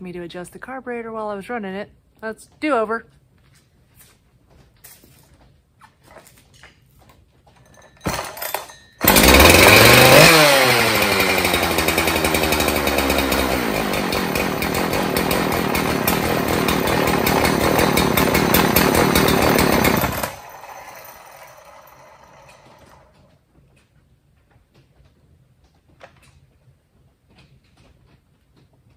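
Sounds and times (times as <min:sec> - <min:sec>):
chainsaw pull-start: 0:07.8 - 0:23.3
chainsaw engine running: 0:08.1 - 0:23.2.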